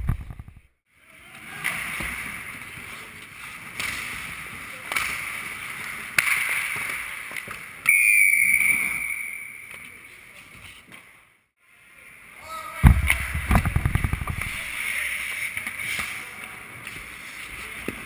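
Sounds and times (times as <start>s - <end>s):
hockey sticks and puck clacking: 1.3s - 11.2s, 12.8s - 18.0s
skates scraping on ice: 12.9s - 18.0s.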